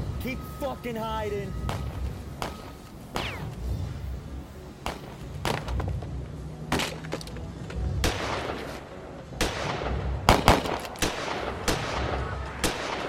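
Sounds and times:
gunshots with ringing echo: 0:09.4 - 0:13.0.

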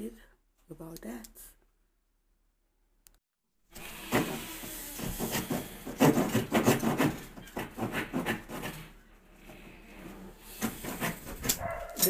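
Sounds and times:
trim scraping against wall: 0:03.8 - 0:12.0.

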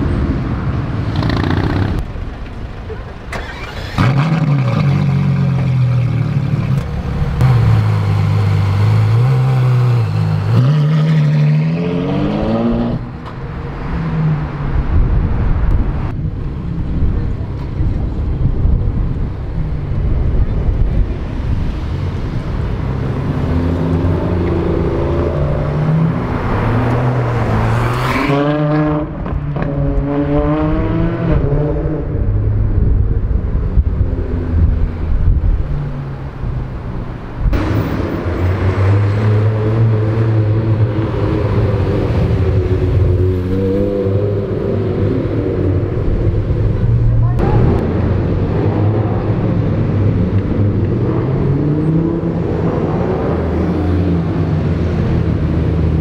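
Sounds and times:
car engines revving and accelerating: 0:00.0 - 0:56.0
car passing close: 0:03.3 - 0:04.9, 0:21.4 - 0:32.1.

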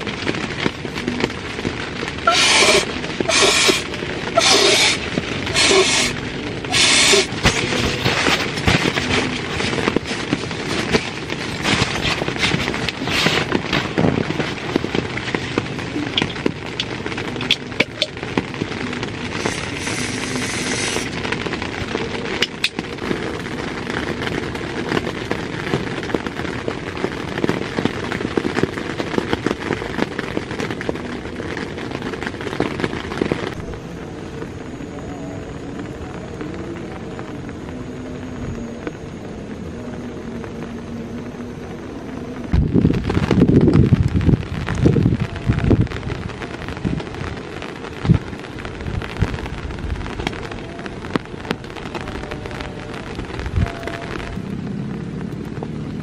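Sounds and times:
rain on a tent: 0:00.0 - 0:56.0
sleeping pad crinkling: 0:00.8 - 0:26.3.

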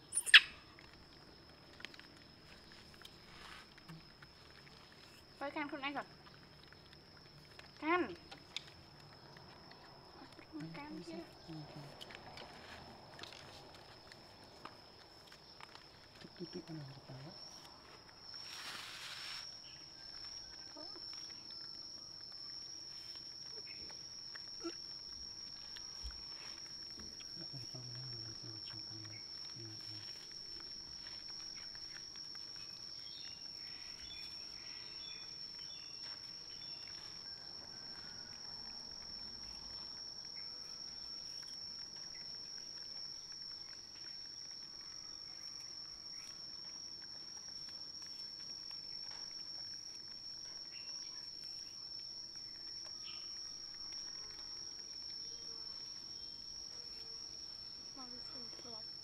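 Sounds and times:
small squeaks: 0:00.0 - 0:01.0, 0:17.5 - 0:22.1
high-pitched insect trill: 0:00.0 - 0:59.0.

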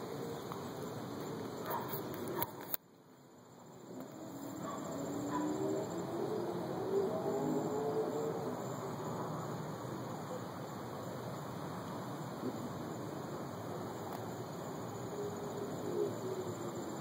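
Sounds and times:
outdoor background noise: 0:00.0 - 0:17.0
bird cooing: 0:15.2 - 0:16.8.

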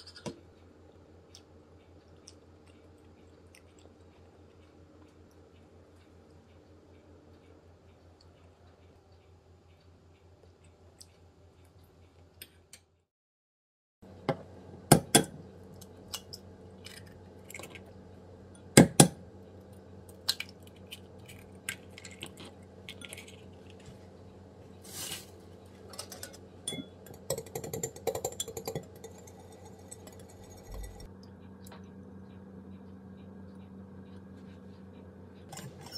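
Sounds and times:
whisk beating eggs in glass bowl: 0:26.8 - 0:31.1.

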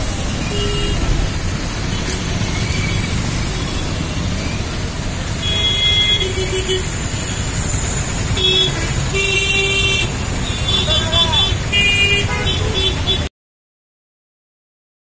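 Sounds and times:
traffic rumble: 0:00.0 - 0:13.3
vehicle horns honking: 0:00.4 - 0:01.2, 0:05.4 - 0:13.3.

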